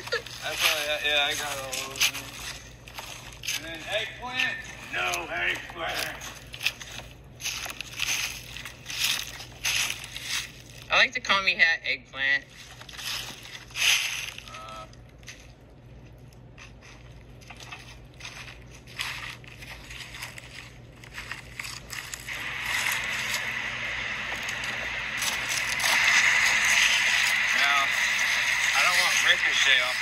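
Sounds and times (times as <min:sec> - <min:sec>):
footsteps crunching on gravel: 0:00.2 - 0:10.9, 0:12.5 - 0:14.6, 0:16.7 - 0:30.0.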